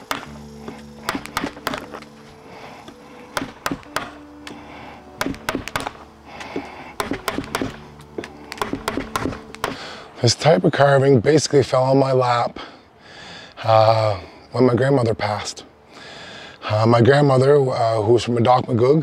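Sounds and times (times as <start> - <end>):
mallet striking chisel into wood: 0.0 - 0.3, 1.0 - 2.0, 3.3 - 4.2, 5.2 - 6.0, 7.0 - 7.8, 8.5 - 9.8.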